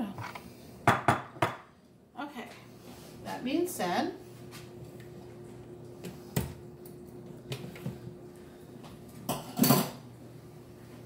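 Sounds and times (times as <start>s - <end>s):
dishes and utensils clattering: 9.2s - 10.0s.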